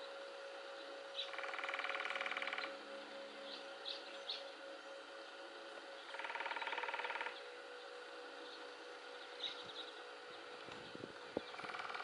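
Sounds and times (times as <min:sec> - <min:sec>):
woodpecker drumming on wood: 0:01.2 - 0:02.8, 0:06.0 - 0:10.8, 0:11.4 - 0:12.0.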